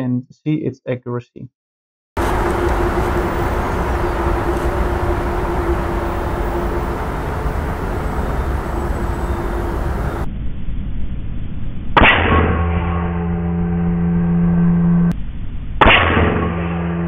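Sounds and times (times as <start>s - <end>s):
faint steady hum: 2.2s - 10.3s
low rumbling background noise: 2.2s - 12.0s
air rifle shot: 15.8s - 16.5s.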